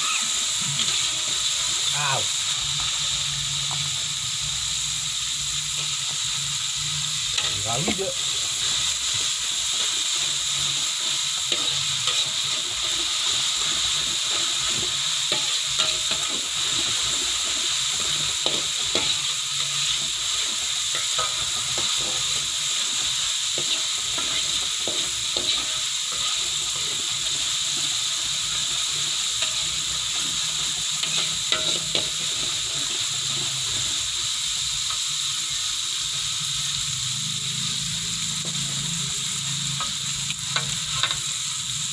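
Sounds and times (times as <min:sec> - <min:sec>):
metal spatula scraping a pan: 0:00.0 - 0:01.9, 0:05.6 - 0:34.1
oil sizzling in a wok: 0:00.0 - 0:41.9.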